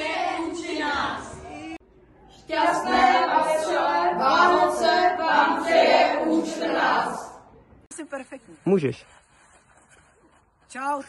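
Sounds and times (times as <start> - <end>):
boys singing in unison: 2.4 - 7.4.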